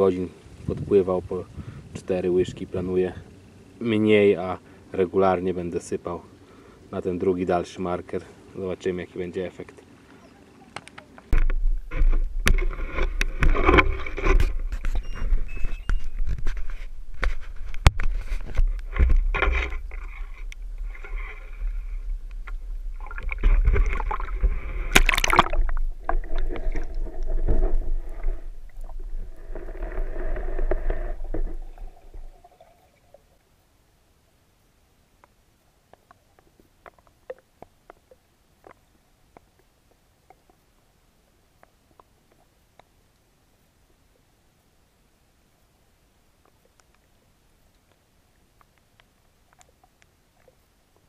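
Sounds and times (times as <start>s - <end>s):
camera handling rumble: 10.9s - 21.2s
knocks and scrapes in reeds: 11.3s - 22.1s
water splashing: 18.2s - 33.4s.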